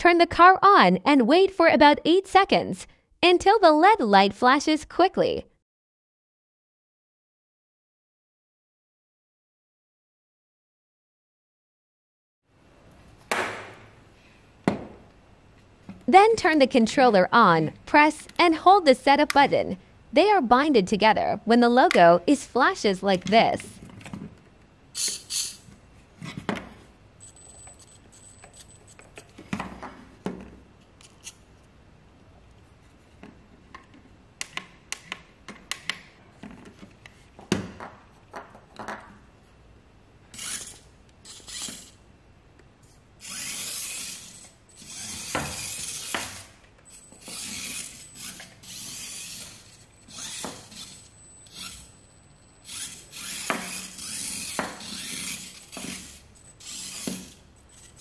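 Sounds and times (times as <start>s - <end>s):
toy car motor whirring: 25.0s - 25.6s, 40.3s - 42.0s, 43.2s - 52.0s, 52.6s - 58.0s.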